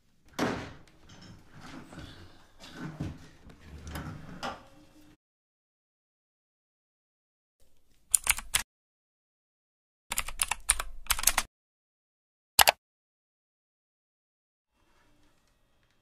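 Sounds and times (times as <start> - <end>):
keyboard typing: 8.1 - 8.6, 10.1 - 11.5, 12.6 - 12.8.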